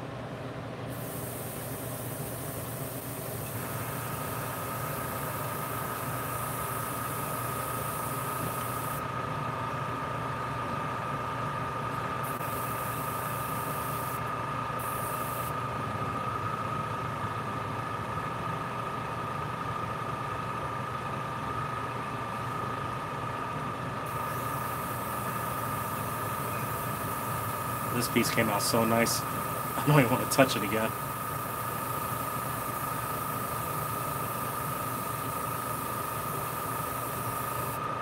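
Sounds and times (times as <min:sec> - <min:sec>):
motor hum with whine: 0:00.0 - 0:38.0
airbrush hissing: 0:00.9 - 0:09.0, 0:12.2 - 0:14.2, 0:14.8 - 0:15.5, 0:24.1 - 0:37.8.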